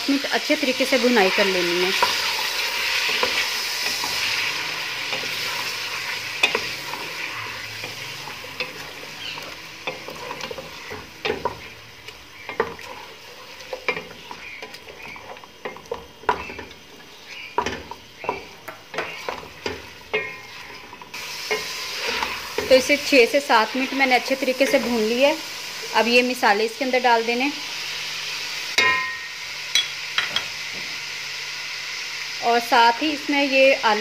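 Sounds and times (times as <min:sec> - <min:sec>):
chicken sizzling in pot: 0:00.0 - 0:34.0
wooden spatula knocking pot: 0:13.8 - 0:20.8.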